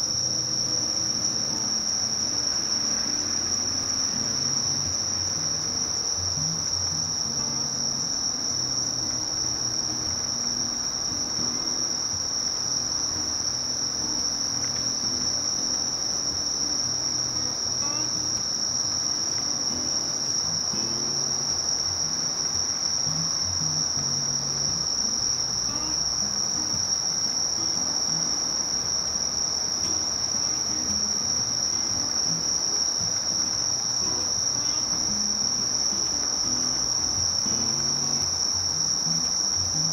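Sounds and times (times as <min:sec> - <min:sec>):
crickets trilling: 0:00.0 - 0:39.9.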